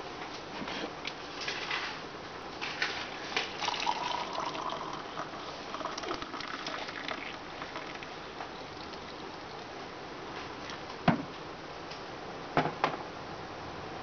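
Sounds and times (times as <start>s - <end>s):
water pouring into a mug: 3.4s - 9.7s.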